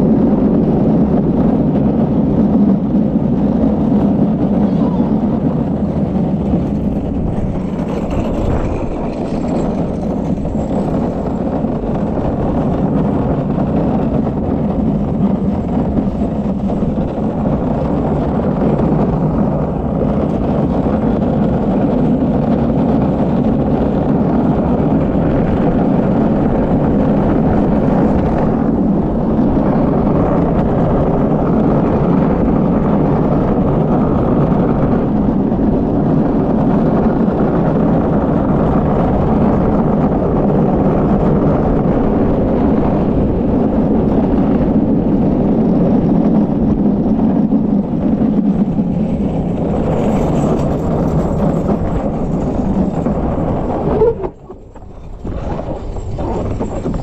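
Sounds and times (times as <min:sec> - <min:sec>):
kart wheels rolling on concrete: 0:00.0 - 0:57.0.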